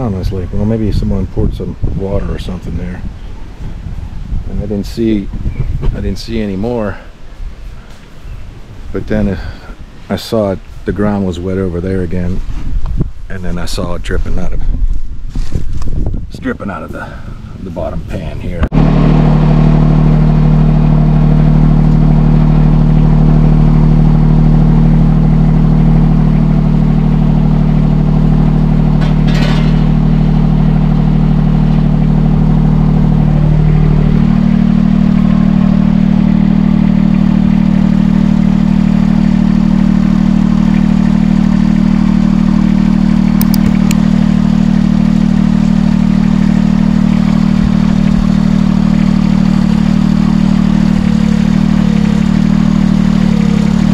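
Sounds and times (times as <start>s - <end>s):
excavator engine running: 18.6s - 53.9s.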